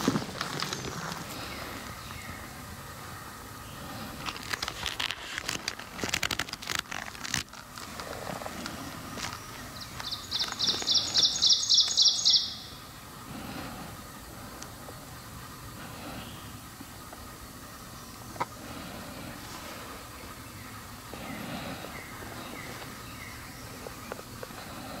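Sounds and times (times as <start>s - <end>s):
footsteps crunching dry leaves: 0.0s - 2.0s
songbird singing high notes: 9.8s - 12.8s.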